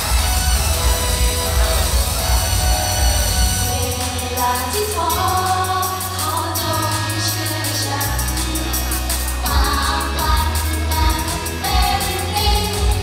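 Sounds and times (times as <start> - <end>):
held bass notes: 0.0 - 7.2
pop song with group vocals: 0.0 - 13.0.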